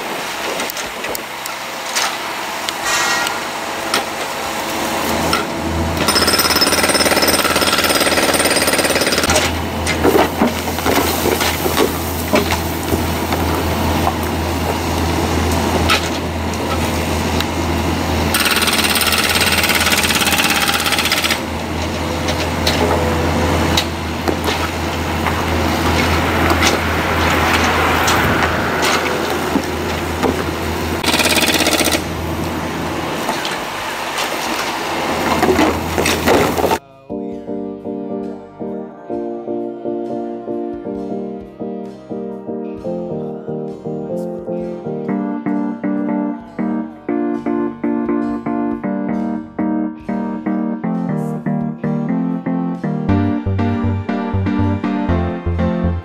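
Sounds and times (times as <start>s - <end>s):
diesel engine hum: 0.0s - 6.1s, 9.3s - 31.2s, 31.9s - 36.8s, 53.1s - 56.0s.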